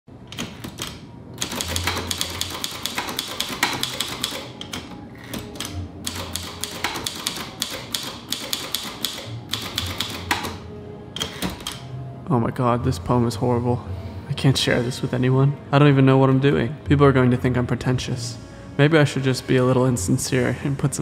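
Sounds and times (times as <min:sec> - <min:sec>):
manual typewriter typing: 0:00.4 - 0:10.6.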